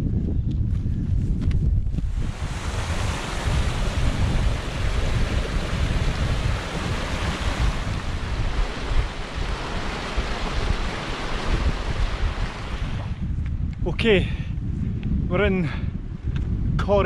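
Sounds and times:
wind buffeting microphone: 0.0 - 17.0
stream tumbling over rocks: 2.2 - 12.8.

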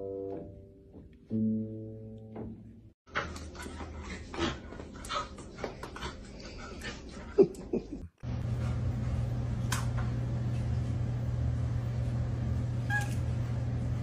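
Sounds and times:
steady low hum: 8.2 - 14.0.

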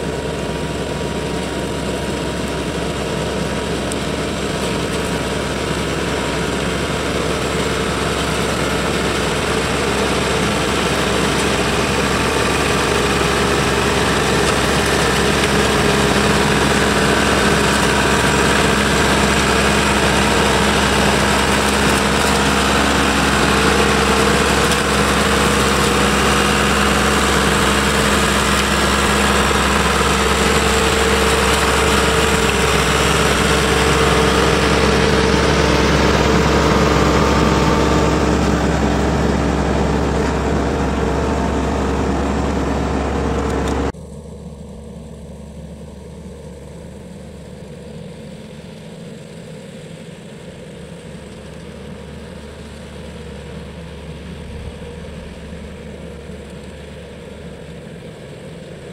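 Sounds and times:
trimmer running: 0.0 - 43.9
tractor engine: 0.0 - 58.9.

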